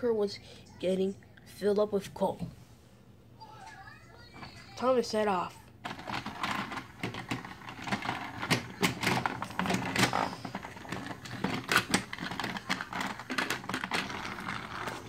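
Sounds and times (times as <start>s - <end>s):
plastic toy trains clattering: 5.8s - 15.0s.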